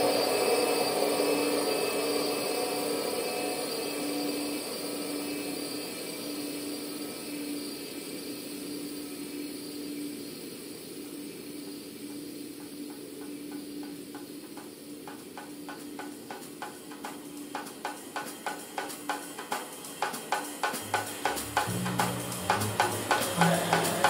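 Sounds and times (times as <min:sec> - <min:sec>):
fast percussive pulse: 0:17.6 - 0:24.0
synthesizer noise drone: 0:20.8 - 0:24.0
held low synth note: 0:20.9 - 0:24.0.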